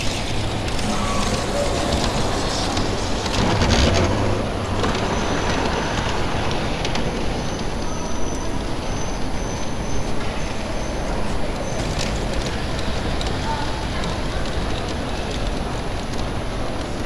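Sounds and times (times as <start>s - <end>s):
model train rumbling on track: 0.0s - 17.0s.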